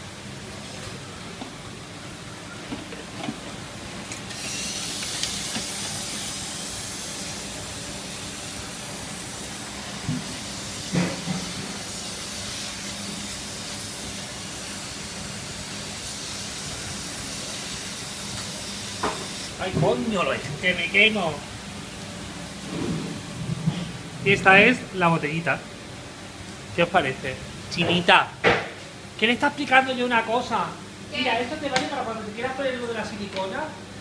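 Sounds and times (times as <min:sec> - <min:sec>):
steam wand hissing: 0:04.3 - 0:20.3.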